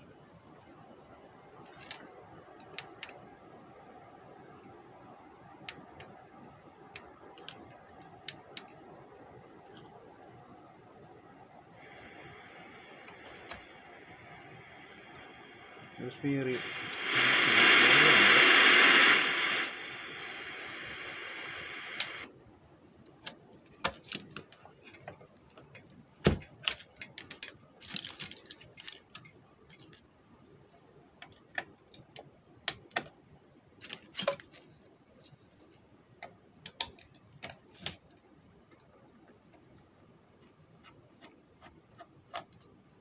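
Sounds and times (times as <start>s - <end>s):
loud static hiss: 11.4s - 22.3s.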